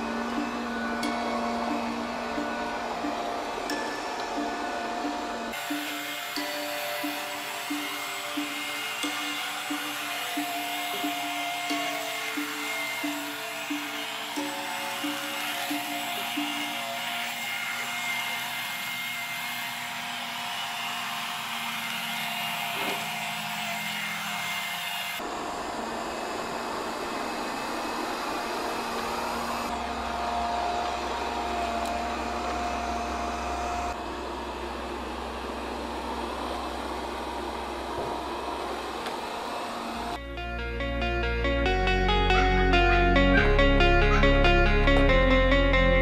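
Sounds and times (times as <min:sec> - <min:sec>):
robot vacuum motor whirring: 0:00.0 - 0:25.2.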